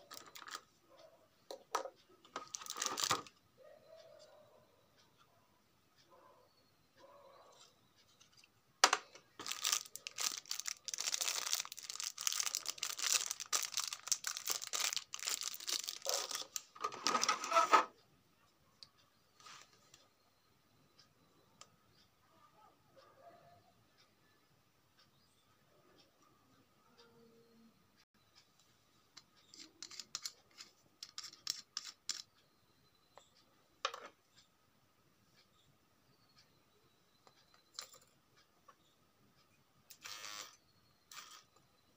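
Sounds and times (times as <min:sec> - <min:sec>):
plastic bag crinkling: 0:00.0 - 0:00.6, 0:02.4 - 0:03.3, 0:09.4 - 0:17.7
metal cap threads scraping: 0:29.4 - 0:32.3.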